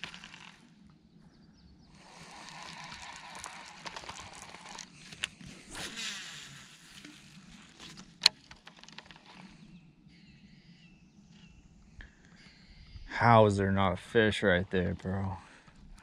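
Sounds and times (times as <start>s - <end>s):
birds chirping faintly: 0.6s - 5.8s, 7.0s - 16.0s
fishing rod handling rustle: 2.0s - 9.7s.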